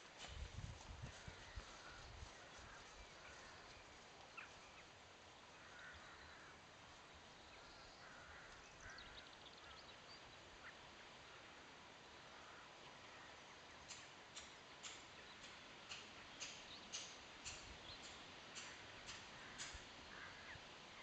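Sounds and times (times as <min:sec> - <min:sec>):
faint distant calls: 0:01.1 - 0:06.7.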